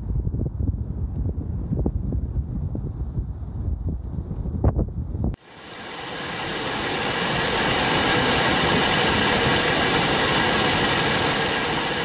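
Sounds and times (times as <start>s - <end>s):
jet engine at takeoff power: 5.4s - 12.0s.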